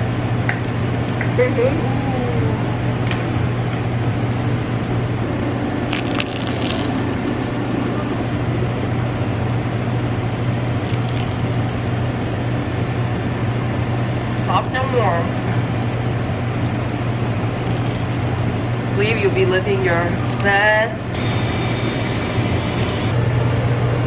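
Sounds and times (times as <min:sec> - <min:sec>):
low hum with hiss: 0:00.0 - 0:24.0
pastry crackling when chewed: 0:05.8 - 0:07.6, 0:10.6 - 0:11.8, 0:17.5 - 0:18.4.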